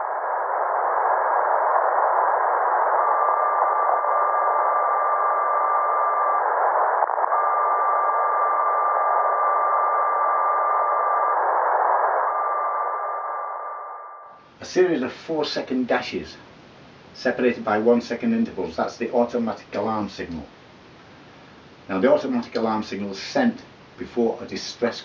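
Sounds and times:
morse tone long dashes: 0.0s - 14.2s
radio receiver hiss: 0.0s - 25.0s.

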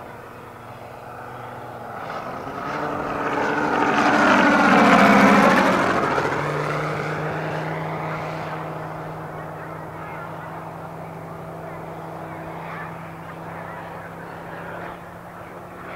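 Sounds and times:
model plane radial engine flyby: 0.0s - 15.9s.

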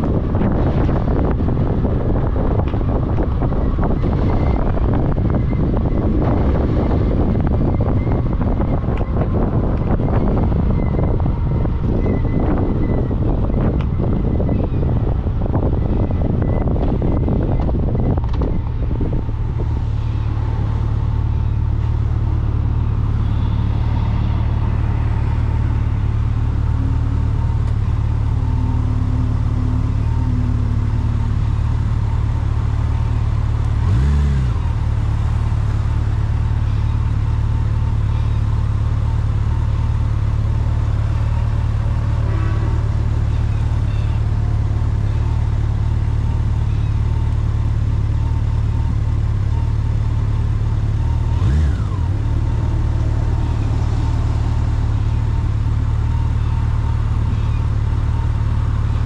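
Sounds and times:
wind buffeting microphone: 0.0s - 20.8s
vehicle drone: 0.0s - 59.0s.

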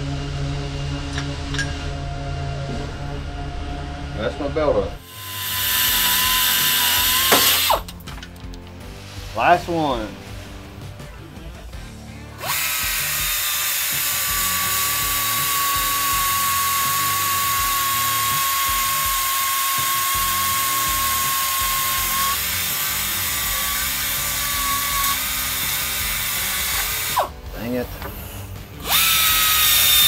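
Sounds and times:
cut-off grinder cutting metal: 5.0s - 7.9s, 12.4s - 30.0s.

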